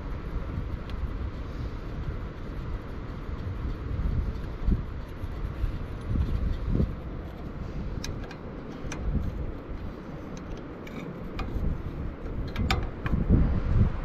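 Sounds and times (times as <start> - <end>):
small metal parts clicking: 10.3 - 13.2.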